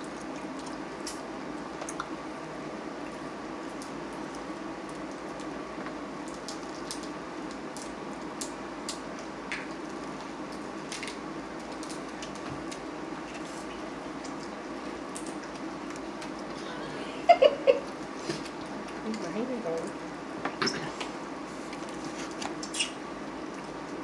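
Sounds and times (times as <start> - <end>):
background hum: 0.0 - 24.0
crab shells cracking: 6.2 - 9.9, 10.5 - 13.4.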